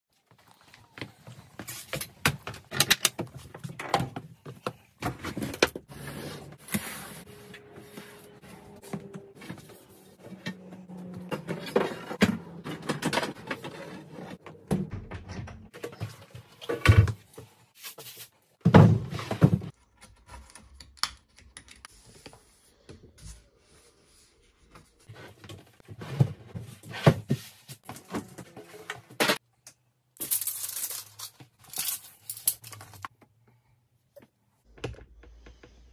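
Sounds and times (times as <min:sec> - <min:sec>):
knocks and clatter of wood and tools: 0:18.6 - 0:20.4.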